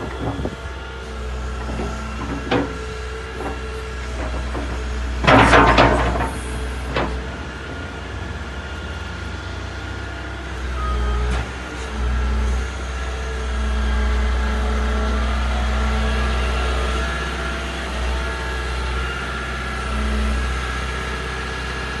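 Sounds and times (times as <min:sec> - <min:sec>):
excavator diesel engine droning: 0:00.0 - 0:22.0
loud clatter: 0:01.6 - 0:07.2.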